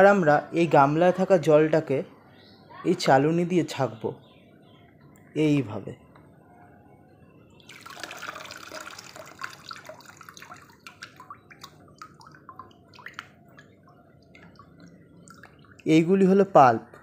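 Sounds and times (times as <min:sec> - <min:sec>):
drips and trickles: 0:07.5 - 0:16.6
slurry pouring through a sieve: 0:07.7 - 0:10.9.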